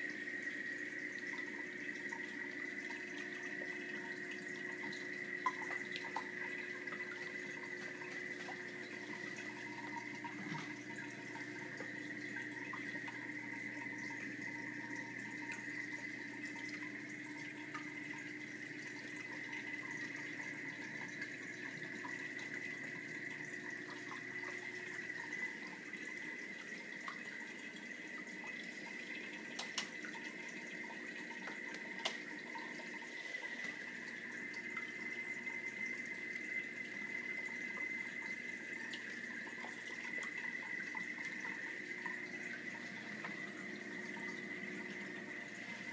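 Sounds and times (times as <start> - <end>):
constant humming tone: 0.0 - 45.9.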